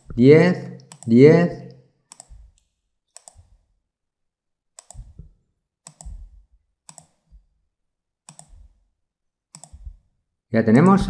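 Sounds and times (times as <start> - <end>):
computer mouse button clicking: 4.8 - 5.1.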